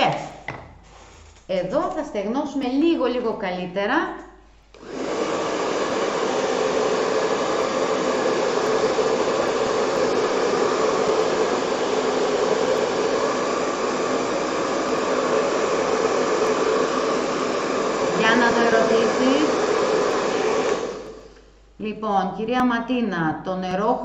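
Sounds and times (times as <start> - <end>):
hot-air dryer blowing: 4.7 - 21.5.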